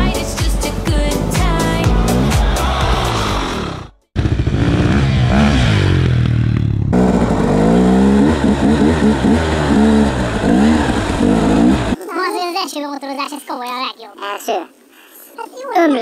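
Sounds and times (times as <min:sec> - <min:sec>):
motorcycle engine revving: 0:01.6 - 0:12.0.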